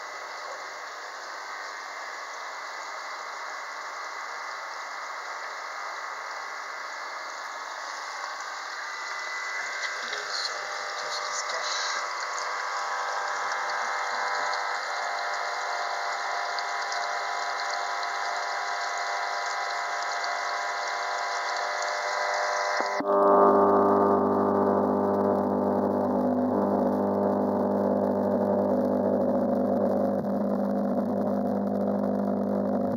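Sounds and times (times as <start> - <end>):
water circulating in a tank: 0.0 - 23.0
aquarium pumps humming: 4.0 - 32.9.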